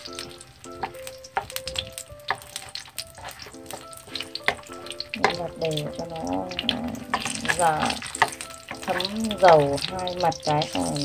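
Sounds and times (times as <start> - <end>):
chopsticks clicking against pan: 0.0 - 11.0
food sizzling in hot oil: 0.0 - 11.0.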